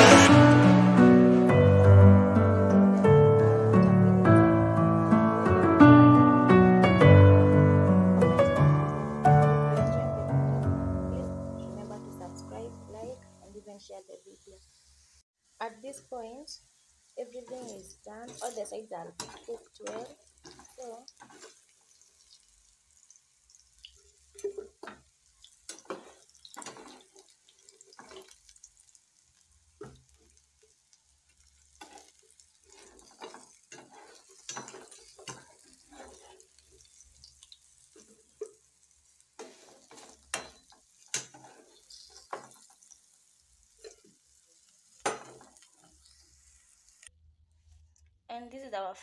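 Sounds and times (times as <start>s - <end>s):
oil sizzling: 0.0s - 47.2s
metal spoon scraping frying pan: 17.5s - 21.7s, 25.7s - 27.2s, 31.8s - 37.1s, 39.4s - 42.8s.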